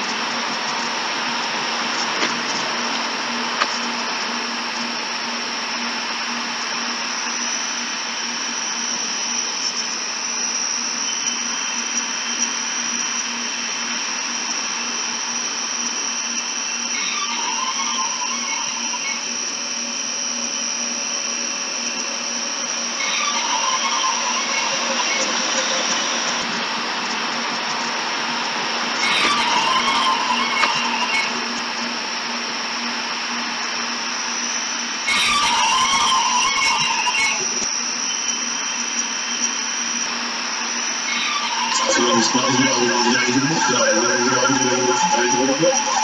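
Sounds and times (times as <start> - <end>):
high whine: 0.0 - 46.0
low hum: 11.0 - 39.7
warbling fluttering tones: 16.9 - 32.3.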